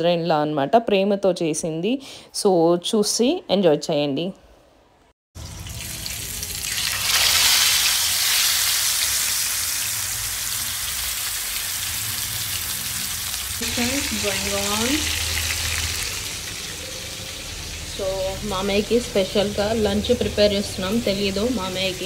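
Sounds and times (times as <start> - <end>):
fish sizzling in hot oil: 5.4 - 20.3.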